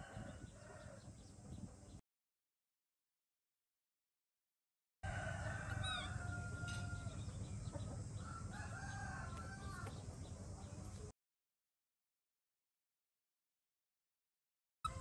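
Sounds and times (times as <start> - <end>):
rooster crowing: 0.0 - 1.0, 5.0 - 7.4, 8.2 - 10.0.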